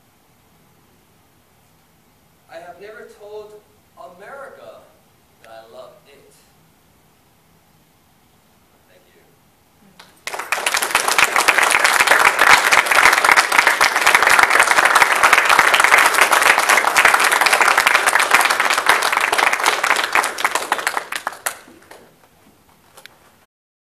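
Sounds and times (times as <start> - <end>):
audience applauding: 10.0 - 22.4.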